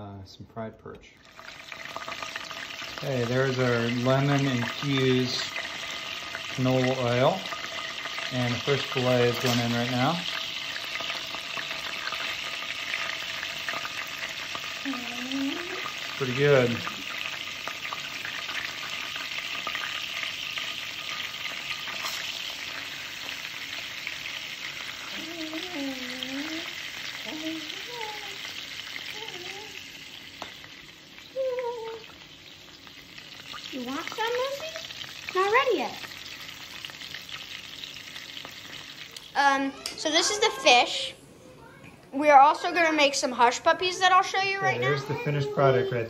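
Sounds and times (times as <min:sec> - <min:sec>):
oil sizzling: 0:01.1 - 0:46.0.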